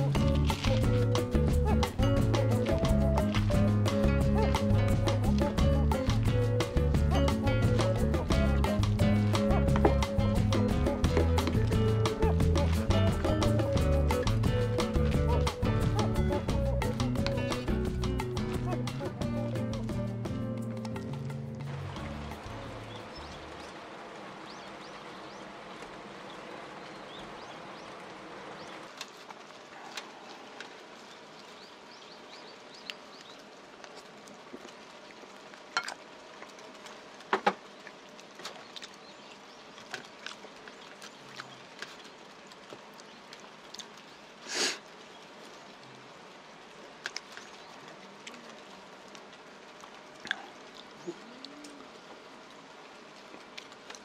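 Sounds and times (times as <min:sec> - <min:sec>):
close eating sounds: 0:00.0 - 0:24.0, 0:25.6 - 0:54.0
light rain hissing: 0:19.8 - 0:54.0.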